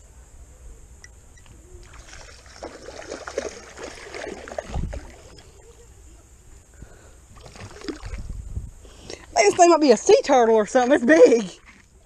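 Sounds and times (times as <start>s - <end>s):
water splashing and sloshing: 1.8s - 5.7s, 7.3s - 8.4s, 9.1s - 12.0s.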